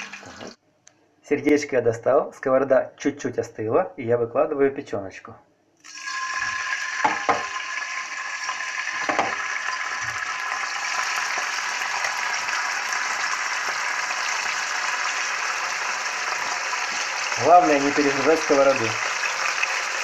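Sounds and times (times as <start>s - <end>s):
liver sizzling in hot oil: 5.8s - 20.0s.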